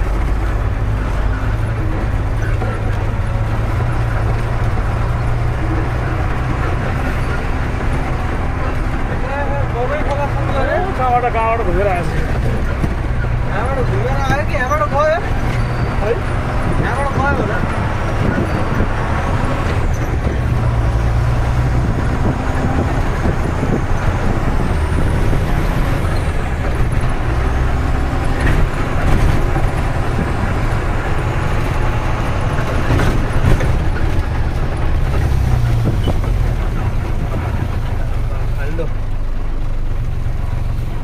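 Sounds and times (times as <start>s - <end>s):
diesel engine running: 0.0s - 41.0s
knocks and rattles: 0.0s - 41.0s
road noise rumble: 0.0s - 41.0s.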